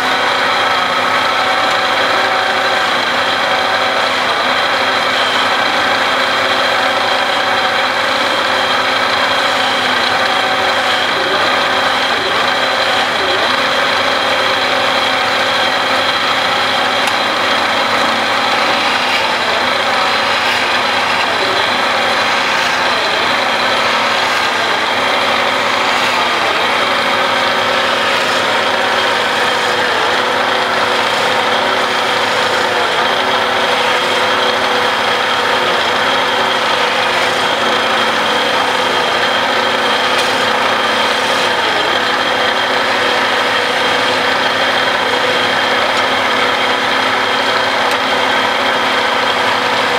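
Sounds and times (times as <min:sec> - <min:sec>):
wood lathe humming: 0:00.0 - 0:49.9
chisel scraping wood: 0:15.3 - 0:41.9.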